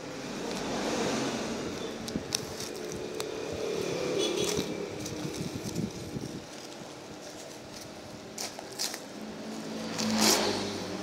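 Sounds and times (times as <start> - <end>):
plastic wrapping crinkling: 2.0 - 3.4, 4.3 - 10.3.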